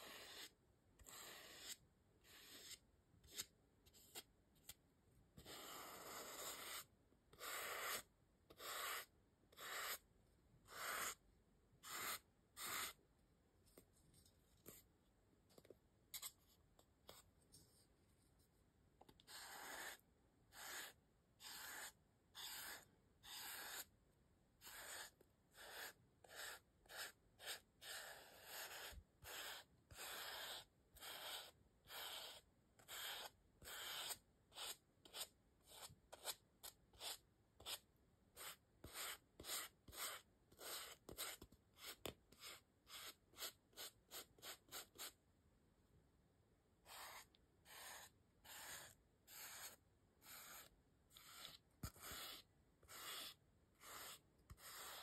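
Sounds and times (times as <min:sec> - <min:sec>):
paintbrush scratchy brushing strokes: 0:11.8 - 0:13.0, 0:15.6 - 0:23.9, 0:24.6 - 0:36.4, 0:46.8 - 0:55.0.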